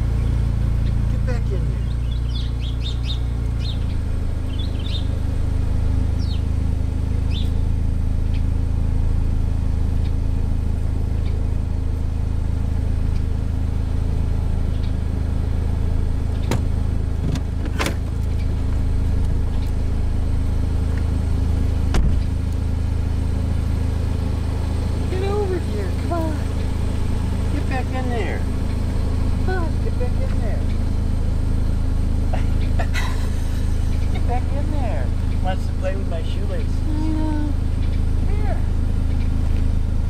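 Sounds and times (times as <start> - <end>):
car engine droning: 0.0 - 40.0
small thump: 16.4 - 18.0, 21.9 - 22.3.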